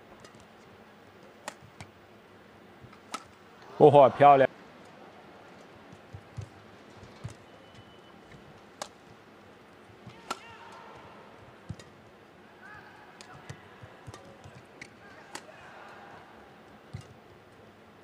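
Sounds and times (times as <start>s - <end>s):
arena crowd hum: 0.0s - 18.0s
racket striking shuttlecock: 1.4s - 1.9s, 2.9s - 3.4s, 6.0s - 9.0s, 10.0s - 12.0s, 13.2s - 15.6s, 16.8s - 17.3s.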